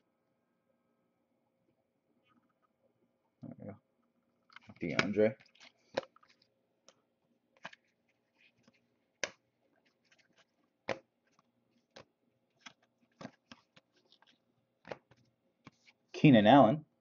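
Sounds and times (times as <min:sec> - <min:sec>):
cards being shuffled by hand: 0:04.5 - 0:06.5, 0:07.5 - 0:16.1.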